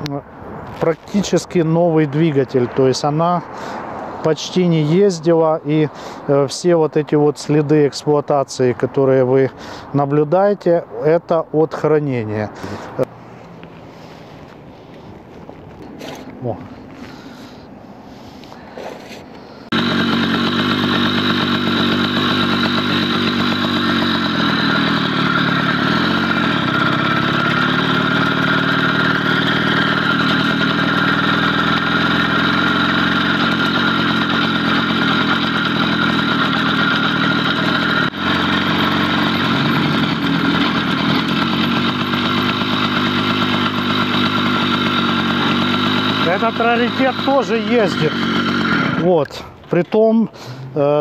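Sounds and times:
motorized bicycle engine buzzing: 19.7 - 49.1.

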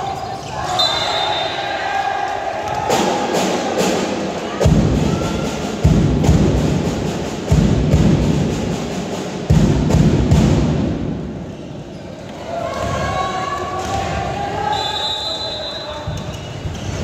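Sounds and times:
deep drum thumps: 4.6 - 11.3.

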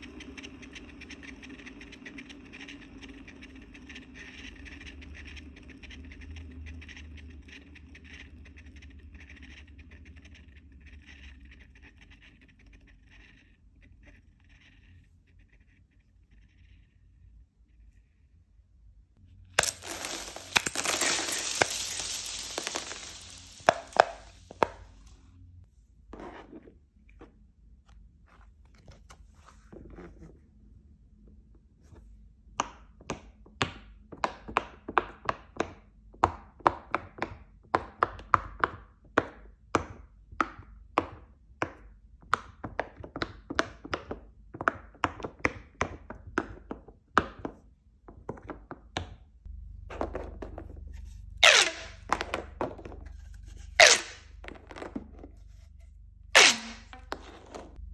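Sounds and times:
fidget spinner bearing whirring: 0.0 - 18.6, 19.5 - 25.2.

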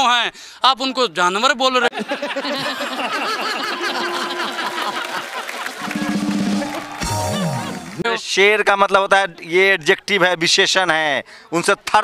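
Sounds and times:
audience laughing and clapping: 1.9 - 8.2.

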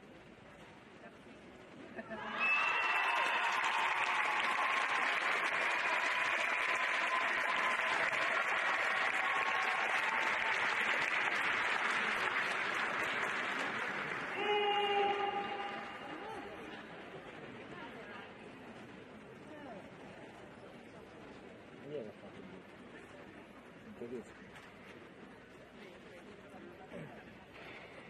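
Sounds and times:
audience applauding and cheering: 2.2 - 16.3.

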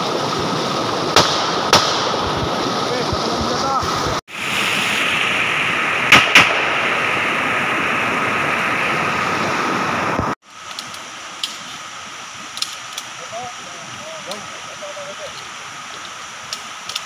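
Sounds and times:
rushing stream water: 0.0 - 17.0
rifle shots: 1.2 - 2.2, 6.1 - 6.8.

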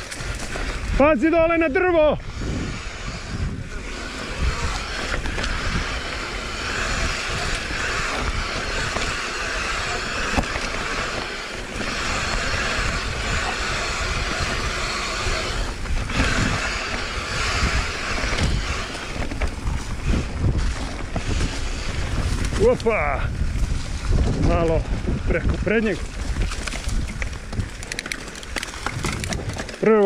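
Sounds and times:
steady high buzz: 0.0 - 22.6
bike tyres rattling on trail: 0.0 - 30.0.

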